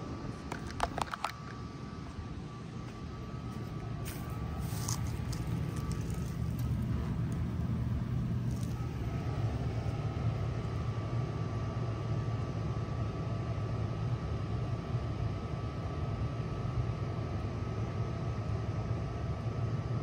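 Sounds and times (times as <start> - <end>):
heat pump humming: 0.0 - 20.0
faint steady high tone: 1.2 - 14.4.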